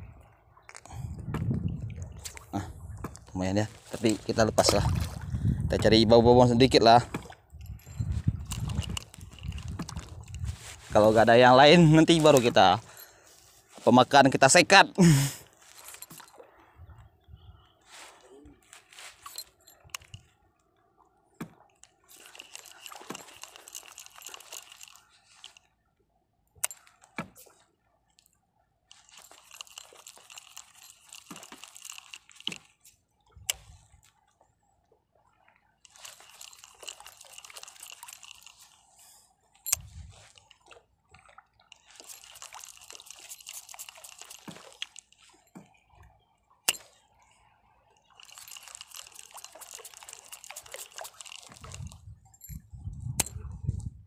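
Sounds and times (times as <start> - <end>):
fishing reel being cranked: 7.6 - 13.0, 22.1 - 25.7, 28.9 - 32.9, 35.9 - 39.0, 41.7 - 45.4, 48.1 - 52.6.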